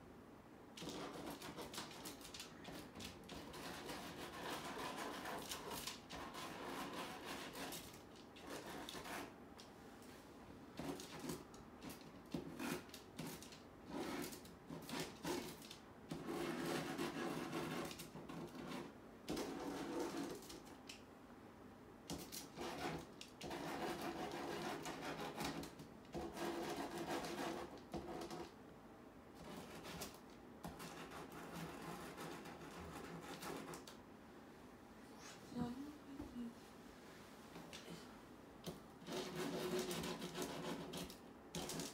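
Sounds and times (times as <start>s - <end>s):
painting tool scrubbing wall: 0.8s - 9.4s, 10.8s - 20.8s, 22.1s - 28.6s, 29.4s - 34.0s, 38.6s - 41.9s.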